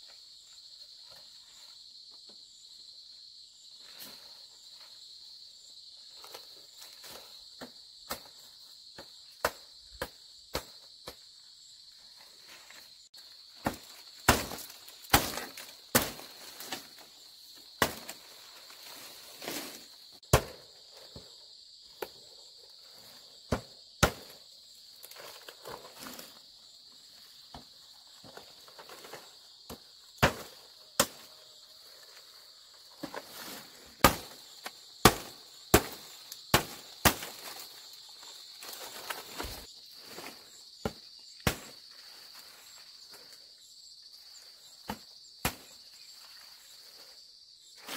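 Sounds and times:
insects chirring: 0.0 - 47.9
blade chopping bamboo: 13.6 - 16.8, 17.8 - 18.2, 20.3 - 20.7, 30.2 - 31.3, 34.0 - 34.4, 35.0 - 37.6.

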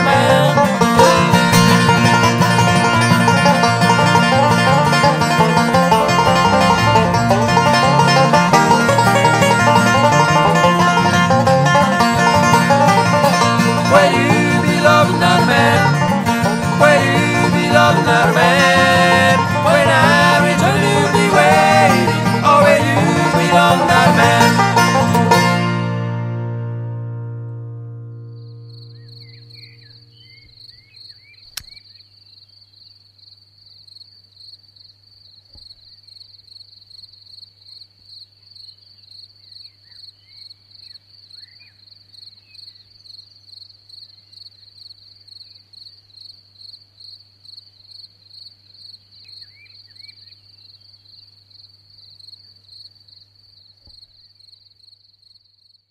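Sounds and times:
insects chirping: 0.0 - 25.4, 28.0 - 55.9
banjo and guitar chord: 0.0 - 30.1
faint bird chirps: 28.5 - 33.0, 38.6 - 44.8, 49.1 - 51.3
sharp click: 31.5 - 31.8.

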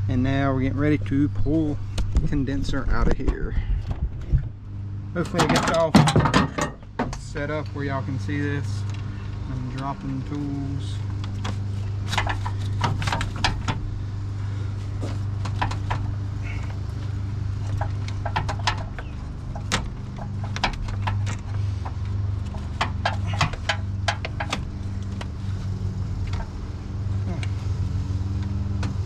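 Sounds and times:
steady low hum: 0.0 - 29.0
clicks and clunks of plastic and metal: 5.2 - 7.2, 17.7 - 25.4.

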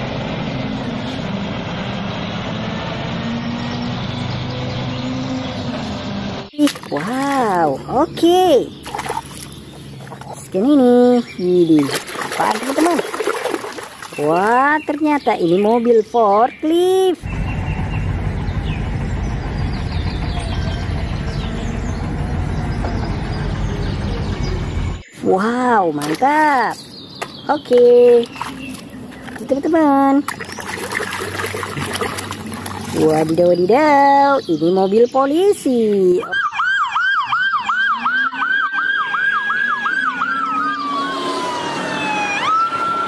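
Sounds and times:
diesel engine rumbling: 0.0 - 36.3
police siren wail: 36.2 - 43.0
police siren yelp: 36.2 - 43.0.

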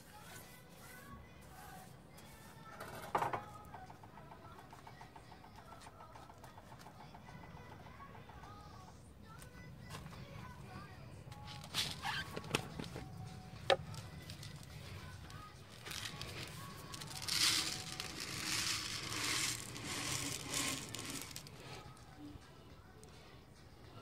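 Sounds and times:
grains pouring into palm: 15.7 - 21.8.

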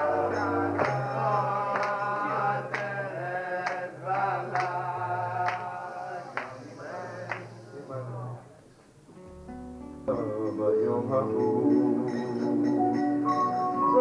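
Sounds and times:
man singing: 0.0 - 7.7, 10.0 - 12.7
acoustic guitar strumming: 9.2 - 14.0.

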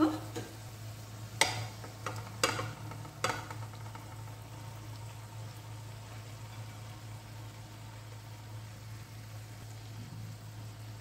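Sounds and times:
faint sizzle: 0.0 - 11.0
knocks against a pan: 1.4 - 4.2.

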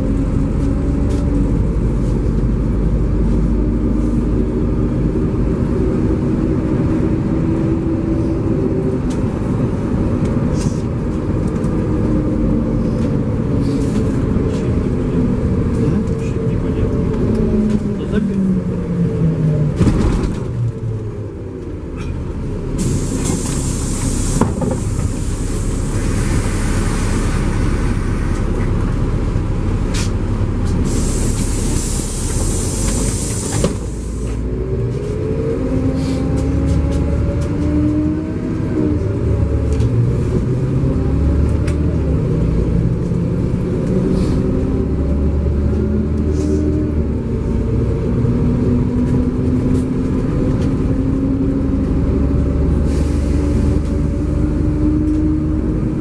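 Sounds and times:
bus engine running: 0.0 - 56.0
air hissing: 22.8 - 27.5, 30.8 - 34.4, 52.8 - 53.5.

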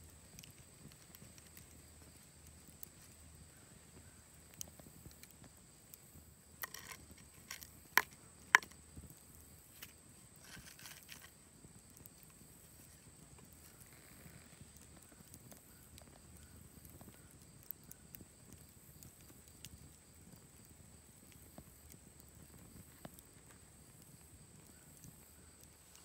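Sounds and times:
wooden stick scraping on stone: 6.6 - 8.7, 9.8 - 11.3.

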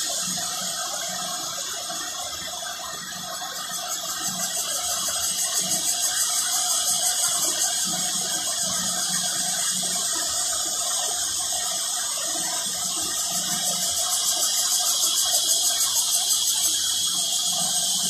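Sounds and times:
cicadas buzzing: 0.0 - 18.0.

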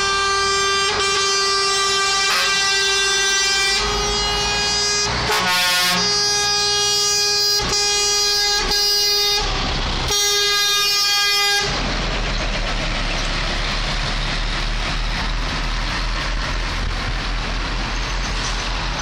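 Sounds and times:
truck air horn blast: 0.0 - 11.8
trucks driving past: 0.0 - 19.0.

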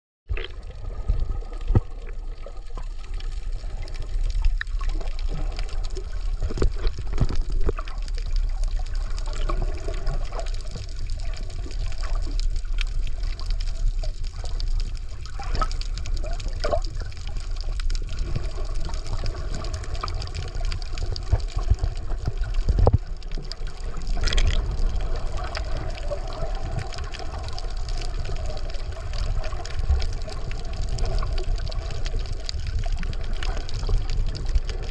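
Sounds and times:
underwater rumble of moving water: 0.3 - 34.9
short clicks and pops: 24.2 - 24.6.

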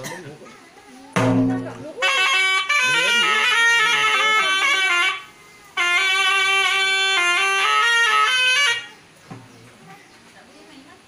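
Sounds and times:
reedy oboe melody: 2.0 - 9.0.

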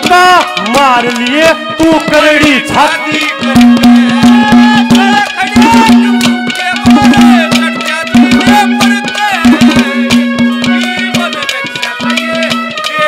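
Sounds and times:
hand drums beating fast rhythm: 0.0 - 13.0
sliding melody: 0.0 - 13.0.

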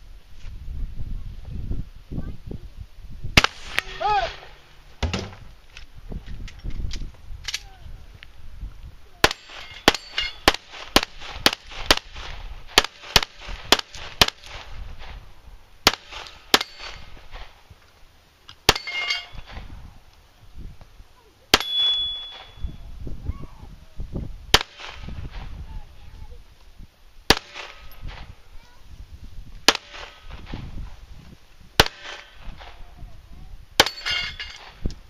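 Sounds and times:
pistol shots: 3.4 - 5.2, 15.8 - 17.1, 24.5 - 25.1, 27.3 - 28.3, 29.7 - 30.4, 31.8 - 32.7
steel targets clanging: 9.3 - 10.5, 16.2 - 17.1, 18.7 - 19.6, 21.5 - 22.7, 33.8 - 34.8.

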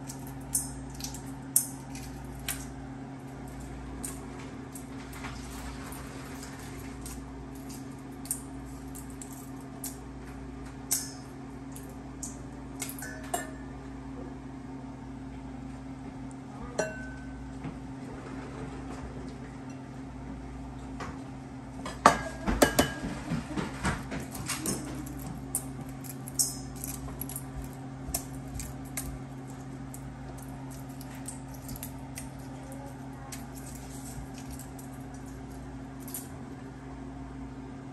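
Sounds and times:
steady low hum: 0.0 - 37.9
dishes and utensils clinking: 12.8 - 13.7, 16.8 - 17.4, 21.9 - 27.6.

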